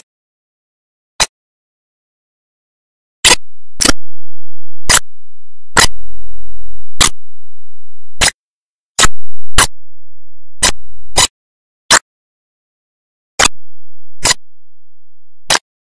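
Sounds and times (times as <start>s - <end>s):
faint low rumble: 3.3s - 8.2s, 9.0s - 11.2s, 13.5s - 15.5s
sharp clicks: 6.9s - 7.3s, 9.0s - 9.8s, 10.6s - 11.3s.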